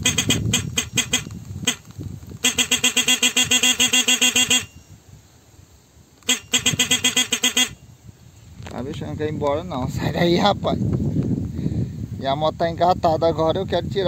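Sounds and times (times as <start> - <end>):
motorcycle horn honking: 0.0 - 5.0, 6.2 - 7.9.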